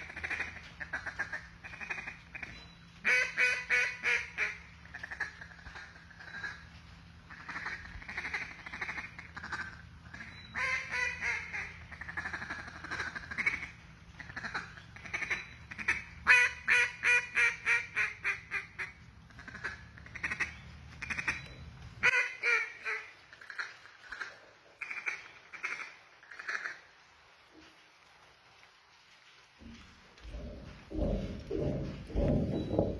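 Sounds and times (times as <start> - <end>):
duck call quacks: 0.0 - 6.6, 7.3 - 21.4, 22.0 - 26.9.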